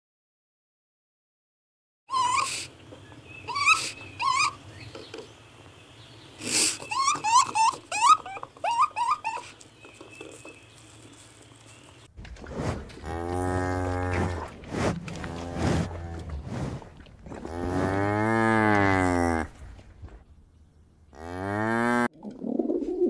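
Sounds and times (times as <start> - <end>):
high chirping calls: 2.1 - 12.1
cow mooing: 13.0 - 14.5, 17.4 - 19.6, 21.1 - 22.1.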